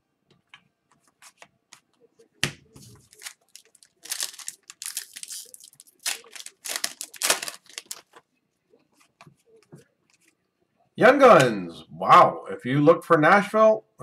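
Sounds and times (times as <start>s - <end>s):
foil wrapper tearing and crinkling: 3.1s - 8.2s.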